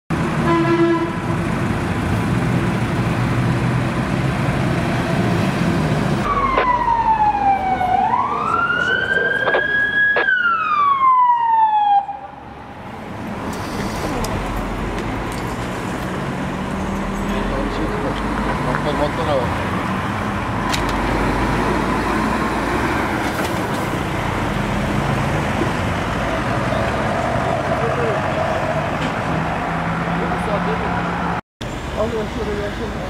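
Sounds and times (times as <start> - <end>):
street traffic noise: 0.1 - 33.0
emergency siren wailing: 6.2 - 12.8.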